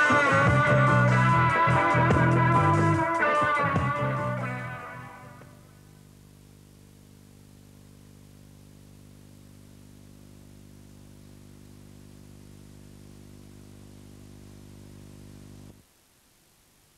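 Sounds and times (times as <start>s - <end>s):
tape hiss: 0.0s - 16.9s
low electrical hum: 3.7s - 16.9s.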